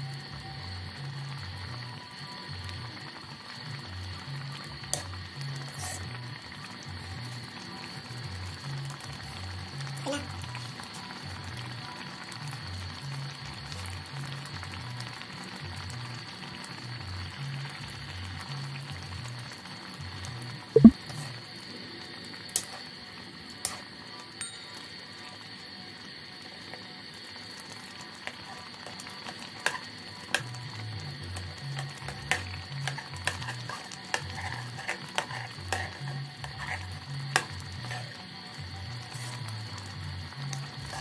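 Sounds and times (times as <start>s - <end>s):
metal ladle scraping wok: 32.2s - 38.2s.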